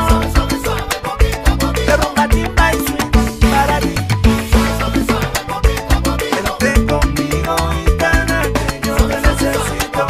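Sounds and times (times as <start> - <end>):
drums and hand percussion: 0.0 - 10.0
upbeat latin dance music: 0.0 - 10.0.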